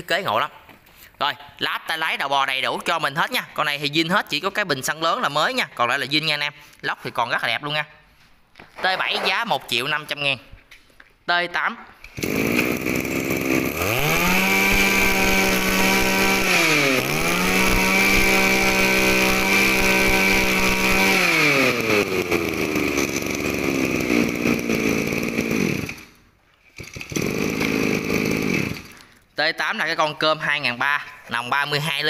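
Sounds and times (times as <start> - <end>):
brush cutter engine revving: 12.0 - 29.1.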